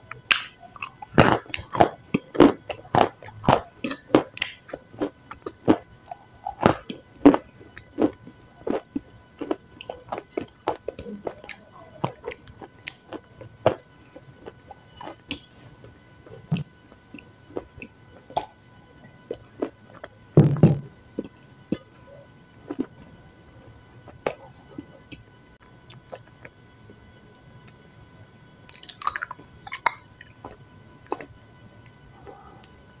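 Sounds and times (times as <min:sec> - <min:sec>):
person chewing with wet clicks: 0:00.0 - 0:18.6, 0:19.2 - 0:20.1, 0:21.2 - 0:21.9, 0:22.6 - 0:23.0, 0:25.9 - 0:26.6, 0:28.5 - 0:32.8.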